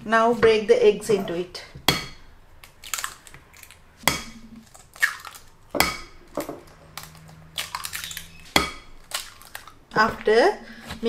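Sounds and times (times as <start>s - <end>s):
eggs cracking into a glass bowl: 2.6s - 9.8s.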